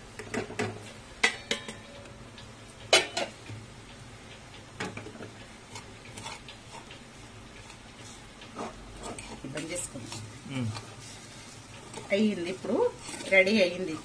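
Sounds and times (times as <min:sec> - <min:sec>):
steel spoon clinking on frying pan: 0:01.2 - 0:02.0.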